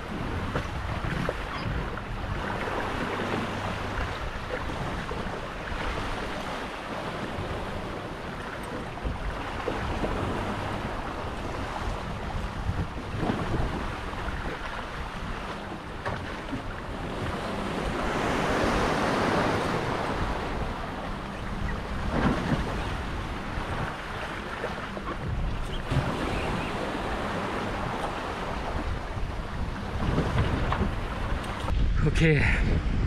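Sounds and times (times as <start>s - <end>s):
water rushing along hull: 0.0s - 33.0s
wind buffeting microphone: 0.0s - 33.0s.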